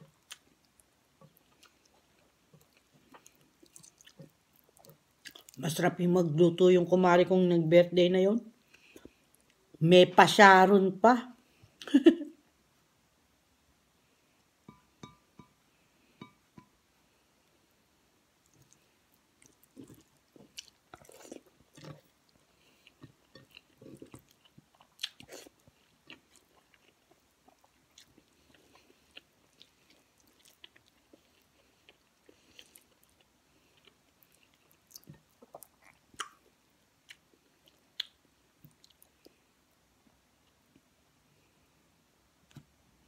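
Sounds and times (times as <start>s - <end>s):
quiet chewing: 0.0s - 5.6s, 8.6s - 9.7s, 18.4s - 41.5s.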